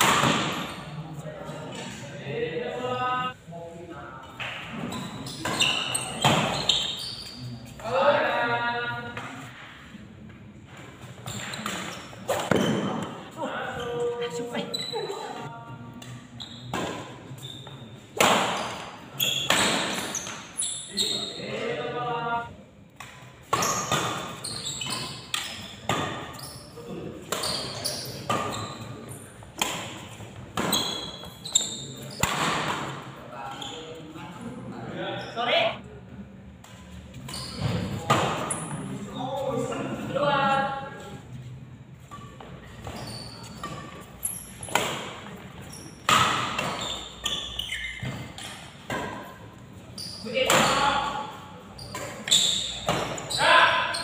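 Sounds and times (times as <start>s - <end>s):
shoes squeaking on court floor: 4.6s - 7.9s, 10.8s - 21.6s, 23.0s - 34.4s, 36.8s - 40.0s, 40.8s - 54.0s
racket hitting shuttlecock: 46.0s - 46.8s.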